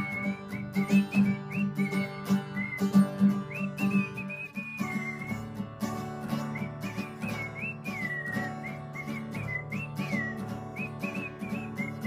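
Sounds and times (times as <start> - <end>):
acoustic guitar strummed: 0.0 - 12.0
whistled melody: 0.0 - 12.0.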